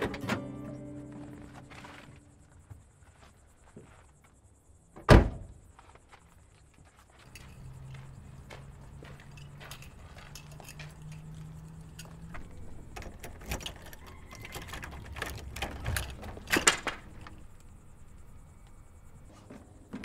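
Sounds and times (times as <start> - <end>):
footsteps on gravel: 1.0 - 2.4, 5.8 - 11.5
keys jangling at a door lock: 7.2 - 7.9, 9.0 - 17.4.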